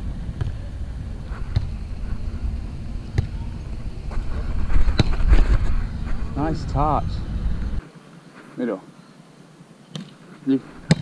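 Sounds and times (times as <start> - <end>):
wind rumbling on microphone: 0.0 - 7.8
volleyball being struck: 3.1 - 3.4.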